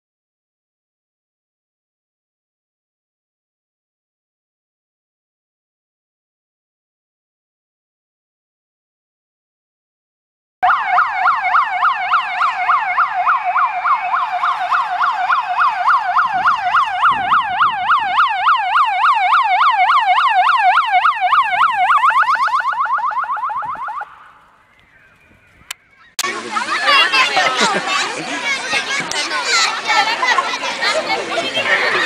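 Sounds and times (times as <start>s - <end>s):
electronic siren yelping: 10.6s - 26.2s.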